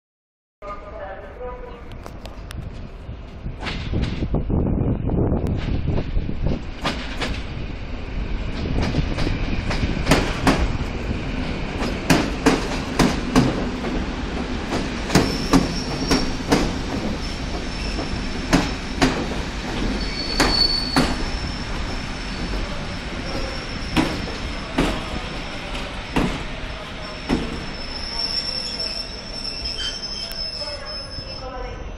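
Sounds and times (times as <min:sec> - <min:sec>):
train rumble: 0:00.6 - 0:31.9
high thin squeal: 0:20.0 - 0:21.8, 0:27.0 - 0:31.6.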